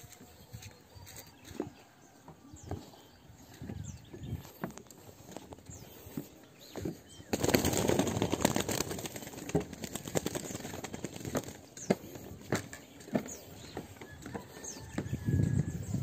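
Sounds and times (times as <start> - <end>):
footsteps on wooden planks: 0.0 - 7.1, 11.3 - 15.6.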